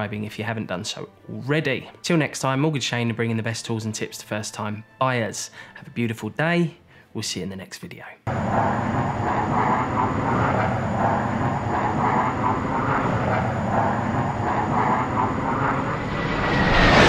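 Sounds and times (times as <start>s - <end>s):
jet engines roaring: 8.3s - 17.0s.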